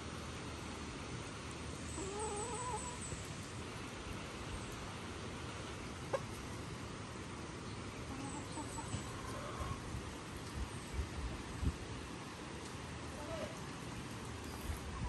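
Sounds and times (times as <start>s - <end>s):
steady background hiss: 0.0s - 15.0s
chicken clucking: 2.0s - 3.0s, 6.1s - 6.4s, 8.1s - 9.8s.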